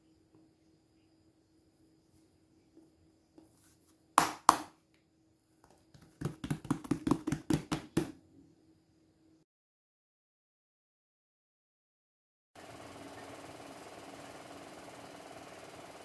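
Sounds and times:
faint steady hum: 0.0s - 9.4s
hands patting and rubbing dough: 5.6s - 8.2s.

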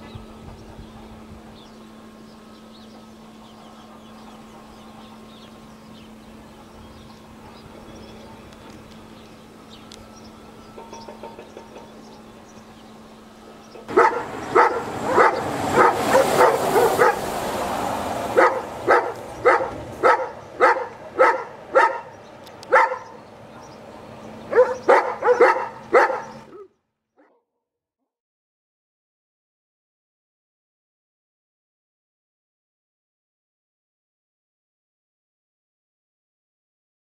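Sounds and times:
dog barking: 13.8s - 17.2s, 18.4s - 23.2s, 24.5s - 27.6s
rushing noise: 13.9s - 21.8s.

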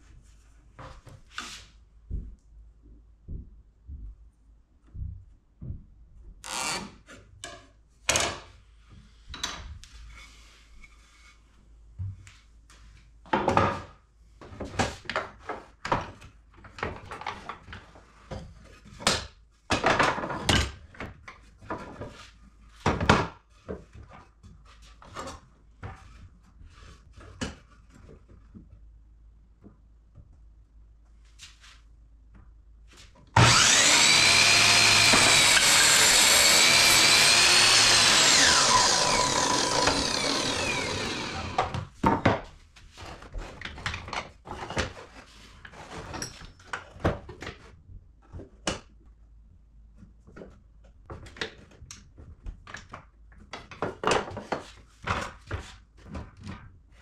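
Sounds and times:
miter saw cutting wood: 33.4s - 41.7s.

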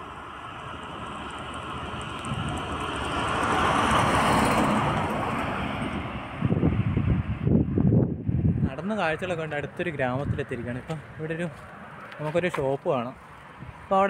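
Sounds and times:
truck driving past: 0.0s - 8.0s.

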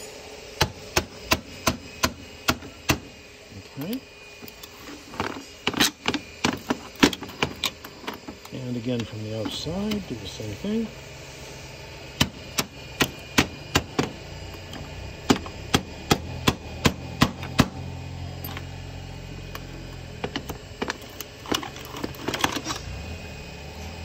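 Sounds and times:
tools clattering and scraping on metal: 4.4s - 10.1s, 18.4s - 18.7s, 19.6s - 22.9s.

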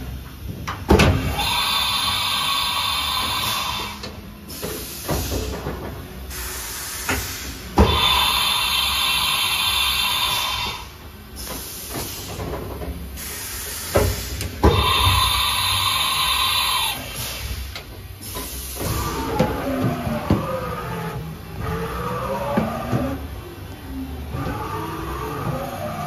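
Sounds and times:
compressed air hiss: 1.3s - 5.6s, 6.3s - 12.6s, 13.2s - 19.3s
motor whine: 18.8s - 26.0s.

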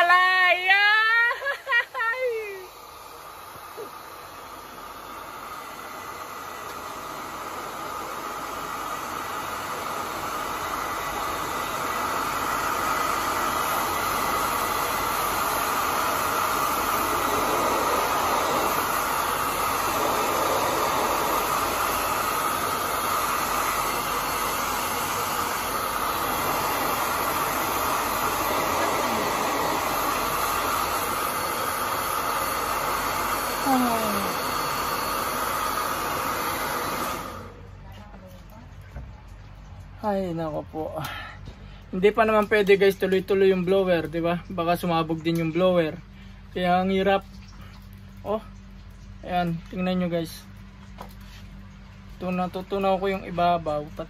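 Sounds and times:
hair dryer running: 0.0s - 37.6s.

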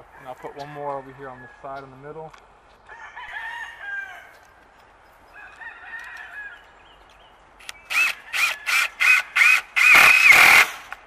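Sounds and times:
rooster crowing: 0.0s - 1.8s, 2.9s - 4.5s, 5.3s - 6.7s
cordless drill driving a screw: 7.9s - 10.7s.

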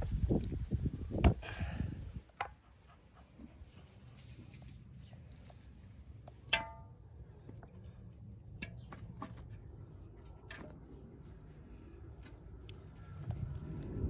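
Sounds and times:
metal pot clang: 6.5s - 6.8s.

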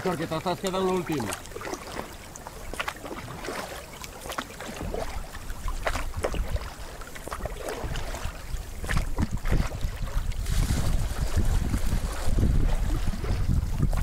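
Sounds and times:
kayak paddles splashing: 0.0s - 14.0s
water slapping against hull: 0.0s - 14.0s
wind buffeting microphone: 4.8s - 14.0s.

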